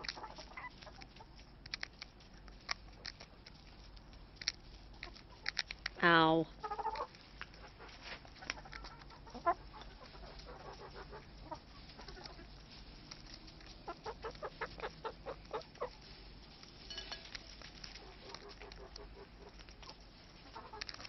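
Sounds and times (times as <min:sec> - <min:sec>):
hens clucking: 0:00.0 - 0:01.6, 0:06.6 - 0:16.5, 0:17.1 - 0:21.0
hens pecking at toast: 0:00.0 - 0:21.0.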